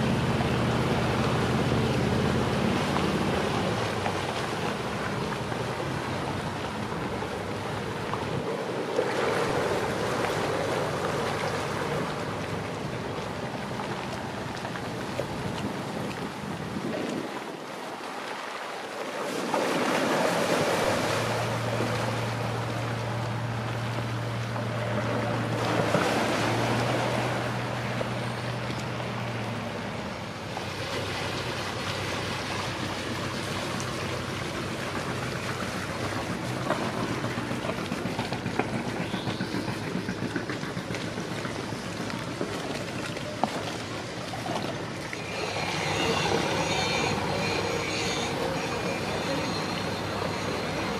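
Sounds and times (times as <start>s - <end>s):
boat engine humming: 0.0s - 50.9s
water: 0.0s - 50.9s
wind buffeting microphone: 15.2s - 17.7s.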